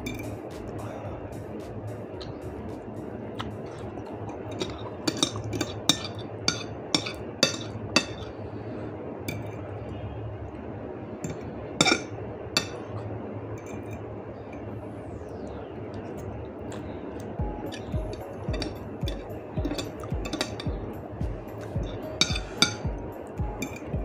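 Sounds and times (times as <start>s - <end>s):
metal fork clinking on a plate: 4.6s - 8.3s, 11.3s - 12.9s, 17.7s - 20.8s, 21.8s - 22.8s.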